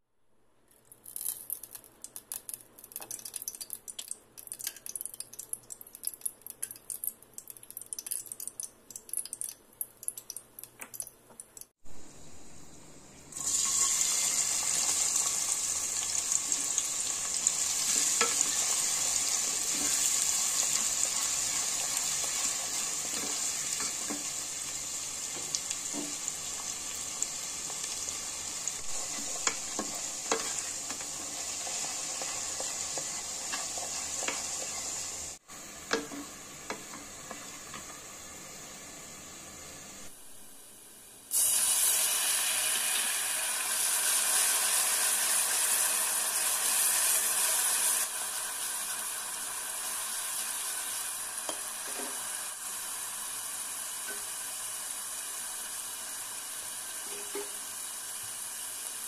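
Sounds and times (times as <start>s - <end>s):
hot oil crackling and popping: 0.8s - 11.8s, 13.4s - 38.4s, 41.3s - 59.0s
onion sizzling in oil: 13.3s - 59.0s.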